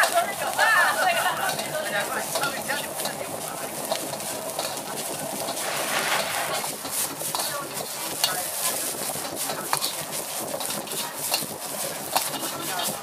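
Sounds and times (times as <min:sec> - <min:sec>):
food sizzling in hot oil: 0:00.0 - 0:13.0
metal ladle scraping a wok: 0:05.4 - 0:07.7.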